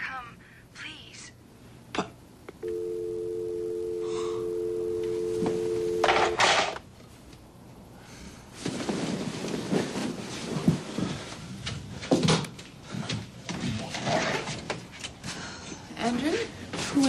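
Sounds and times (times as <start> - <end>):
telephone dial tone: 2.6 - 6.8
bedclothes rustling: 8.5 - 11.9.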